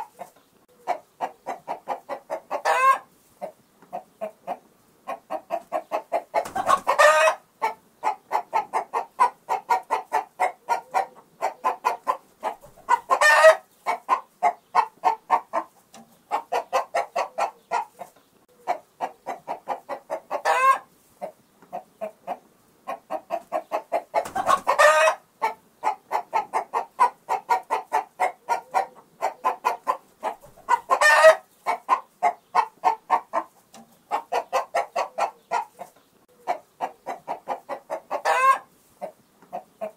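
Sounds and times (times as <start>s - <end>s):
chickens clucking: 0.0s - 39.9s
chicken squawking call: 2.5s - 3.1s, 6.4s - 15.2s, 20.4s - 20.9s, 24.2s - 26.4s, 27.0s - 33.0s, 38.1s - 38.7s.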